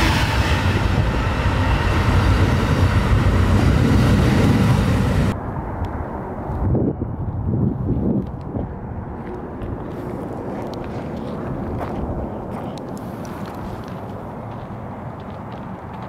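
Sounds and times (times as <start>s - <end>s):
train wheels rumbling on rail: 0.0s - 5.4s.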